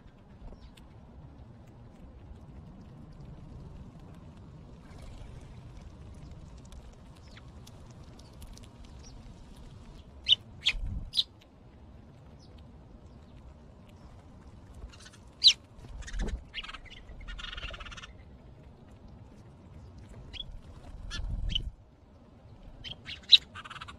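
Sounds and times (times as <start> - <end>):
faint water splashing: 0.0 - 23.9
rustle of water and wings: 0.0 - 23.9
sparrows chirping: 10.0 - 11.3, 14.9 - 18.1, 22.8 - 23.9.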